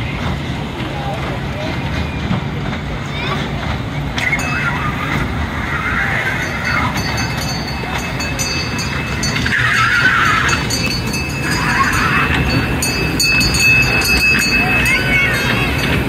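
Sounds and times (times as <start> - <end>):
fairground din: 0.0 - 16.0
kiddie ride train running: 0.0 - 16.0.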